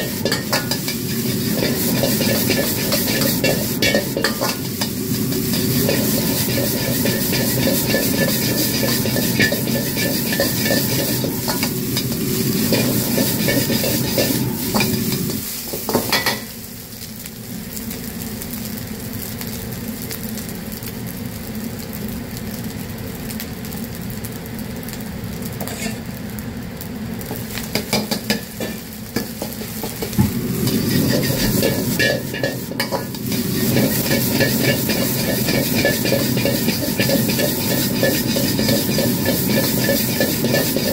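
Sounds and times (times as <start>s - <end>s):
ladle scraping wok: 0.0s - 16.5s, 25.6s - 26.1s, 27.6s - 40.9s
oil sizzling: 0.0s - 40.9s.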